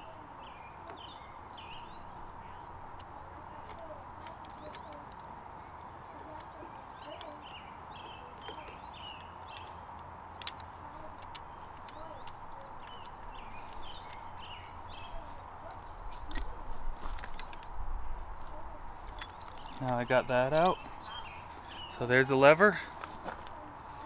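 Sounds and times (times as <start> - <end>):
small birds chirping: 0.0 - 24.0
sharp metal clicks: 8.4 - 14.8.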